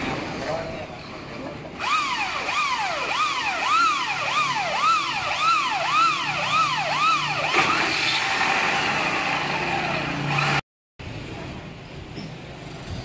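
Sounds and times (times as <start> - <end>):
siren rising and falling: 1.8 - 10.6.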